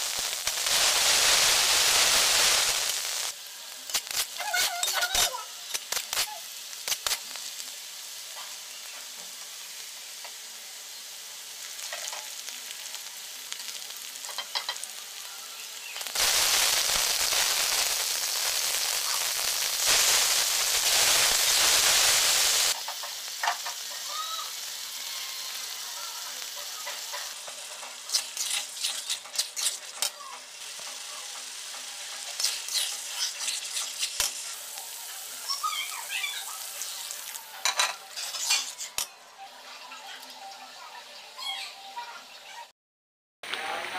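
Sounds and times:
onions sizzling in oil: 0:00.0 - 0:42.7
metal spatula scraping pan: 0:27.1 - 0:30.1, 0:32.2 - 0:34.4, 0:37.7 - 0:39.1.

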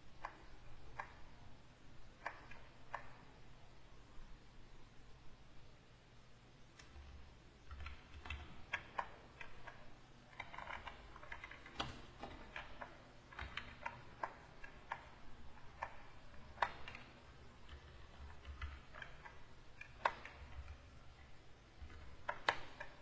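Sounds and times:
computer keys clicking: 0:00.2 - 0:01.3, 0:02.2 - 0:03.3, 0:07.6 - 0:23.0
stylus tapping: 0:07.7 - 0:23.0.

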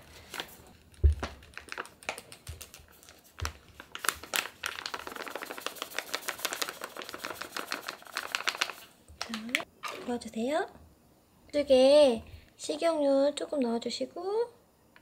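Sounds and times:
paper bag crinkling: 0:00.1 - 0:09.6.

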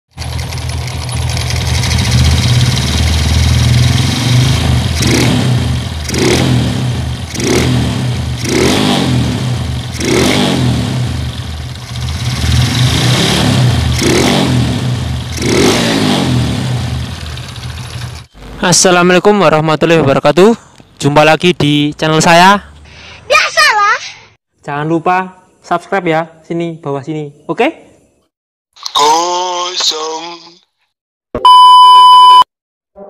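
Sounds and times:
motorcycle engine revving: 0:00.1 - 0:18.6.

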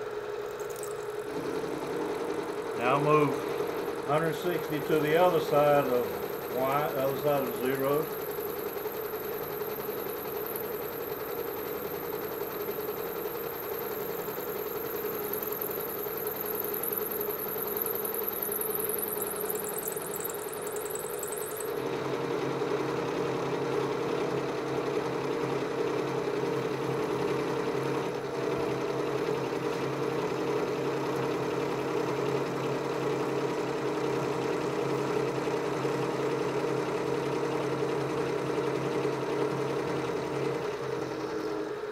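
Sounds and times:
milling machine cutting metal: 0:02.7 - 0:12.3.

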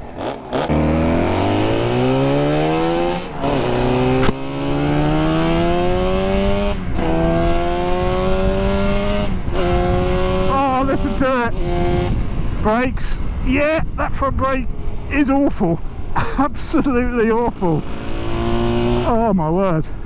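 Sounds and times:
motorcycle accelerating through gears: 0:00.0 - 0:12.7, 0:17.7 - 0:19.2.

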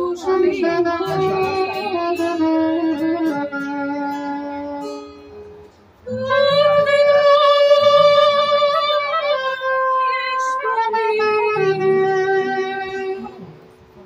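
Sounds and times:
woman singing slow ballad: 0:00.0 - 0:04.0, 0:06.1 - 0:13.4
plucked guitar: 0:00.0 - 0:14.0.

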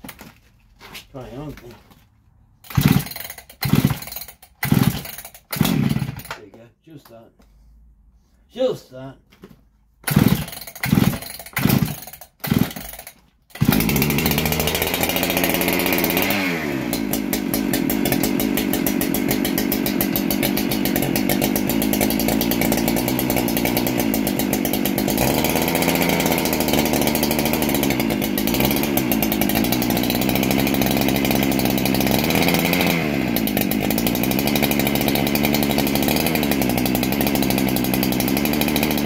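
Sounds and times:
chainsaw engine running: 0:02.6 - 0:06.5, 0:10.0 - 0:39.0
starter cord pulls: 0:02.6 - 0:07.2, 0:09.4 - 0:16.3.

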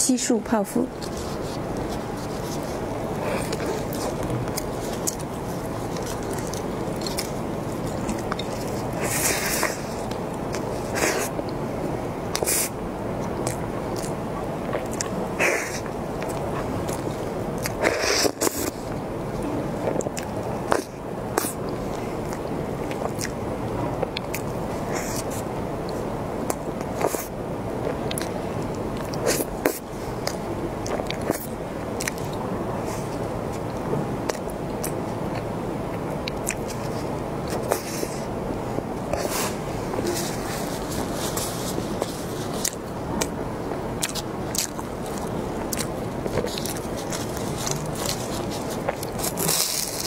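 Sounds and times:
crisp pastry crust crackling: 0:00.9 - 0:11.6, 0:40.1 - 0:50.0
wet chewing and squishing: 0:01.0 - 0:11.6, 0:12.3 - 0:23.4, 0:24.0 - 0:38.3, 0:39.0 - 0:50.0.

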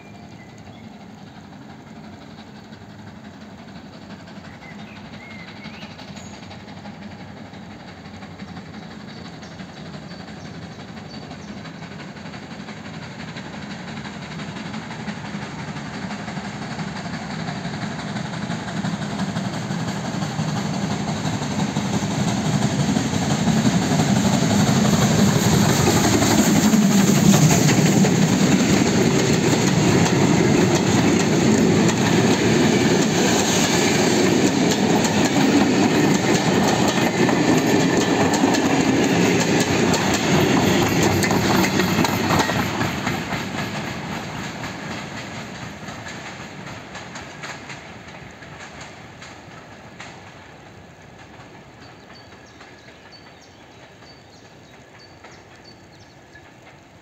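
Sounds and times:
steam locomotive approaching: 0:00.0 - 0:57.0
carriage wheels rumbling on rails: 0:16.8 - 0:50.2.

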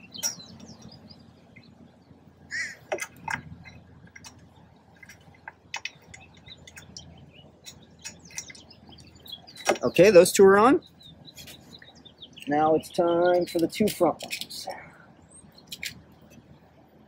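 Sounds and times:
birds chirping: 0:00.0 - 0:17.0
faint clicks and taps: 0:02.9 - 0:09.8.

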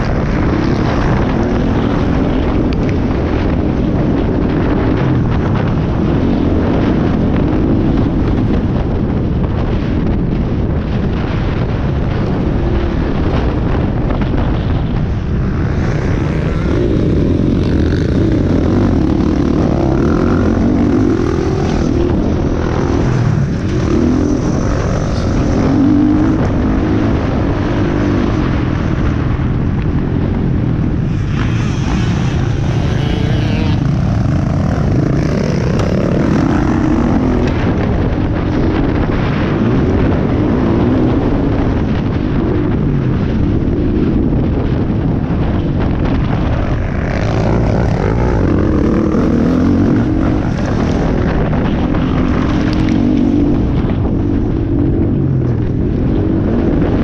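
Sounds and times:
low rumble on microphone: 0:00.0 - 0:57.0
motocross bike engine revving: 0:15.1 - 0:29.3, 0:30.8 - 0:42.1, 0:46.6 - 0:54.6.

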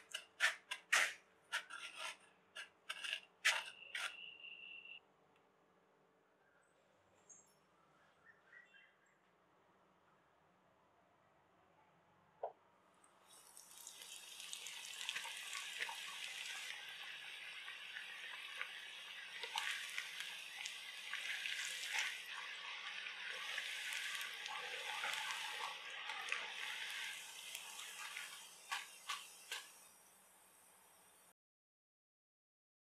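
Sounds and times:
deep-frying sizzle: 0:13.3 - 0:31.3.

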